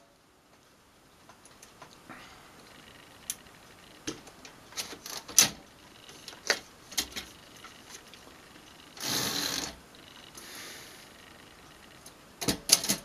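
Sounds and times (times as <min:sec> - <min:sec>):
typewriter clicks and clacks: 0:12.4 - 0:13.0.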